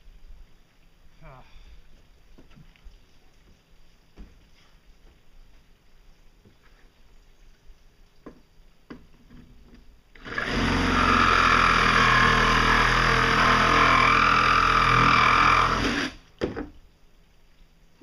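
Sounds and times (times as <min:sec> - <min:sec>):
angle grinder cutting: 0:10.2 - 0:16.2.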